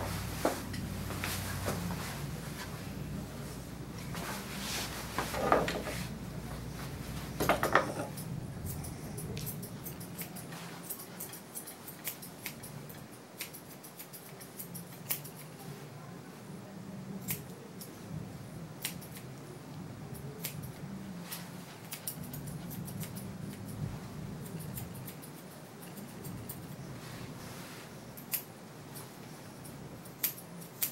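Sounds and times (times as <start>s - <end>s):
low steady hum: 0.0s - 30.8s
grooming shears snipping: 7.4s - 15.6s, 20.2s - 23.8s, 24.4s - 27.0s, 28.2s - 30.9s.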